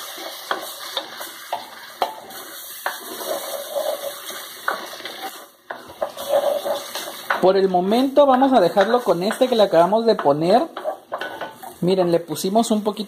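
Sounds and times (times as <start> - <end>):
food sizzling in a pot: 0.0 - 13.0
spoon scraping a clay pot: 0.2 - 7.5, 8.8 - 11.8.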